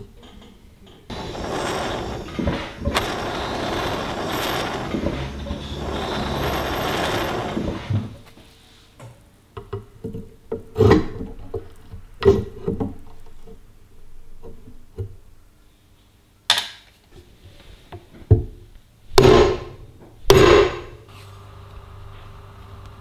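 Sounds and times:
blowtorch flame hissing: 0:01.1 - 0:08.3.

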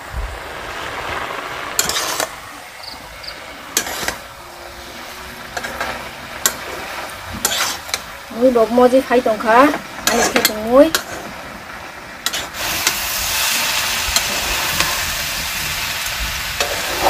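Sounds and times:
low hiss of cooking: 0:00.0 - 0:17.0
utensil scraping cooking pot: 0:01.1 - 0:02.4, 0:03.2 - 0:08.1, 0:09.4 - 0:11.4, 0:12.2 - 0:15.2, 0:16.5 - 0:17.0.

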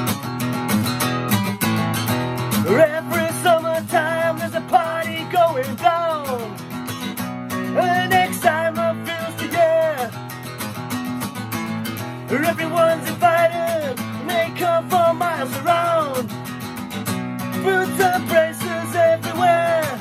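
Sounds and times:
strummed acoustic guitar: 0:00.0 - 0:20.0
man singing: 0:02.6 - 0:06.7, 0:07.6 - 0:10.2, 0:12.2 - 0:16.4, 0:17.5 - 0:20.0.

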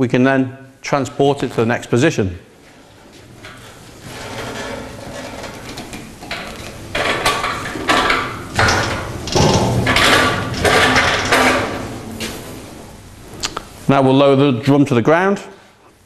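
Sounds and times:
metal frame and drum rattling: 0:02.9 - 0:12.4.

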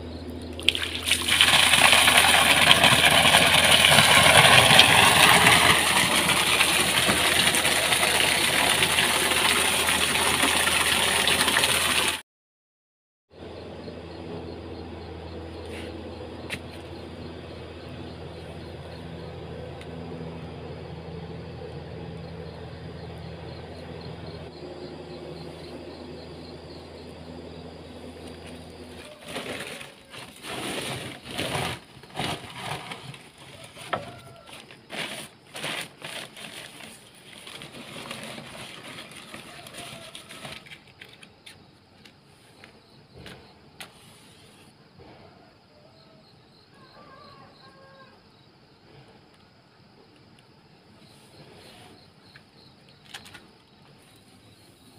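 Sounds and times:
low machine hum: 0:13.4 - 0:33.2
newspaper rustling and crackling: 0:29.0 - 0:41.2.

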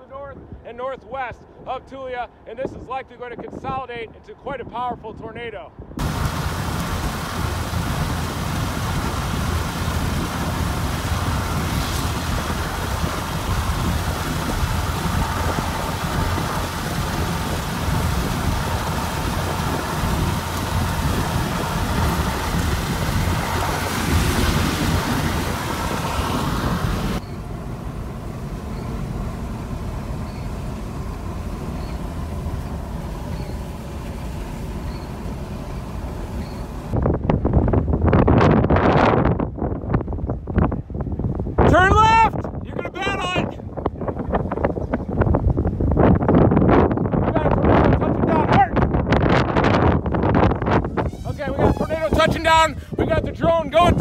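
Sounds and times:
road and wind noise in vehicle: 0:00.0 - 0:54.0
low rumble: 0:05.8 - 0:41.6.

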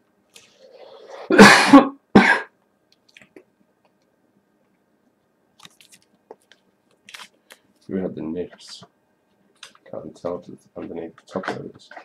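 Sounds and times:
man coughing: 0:01.3 - 0:02.6.

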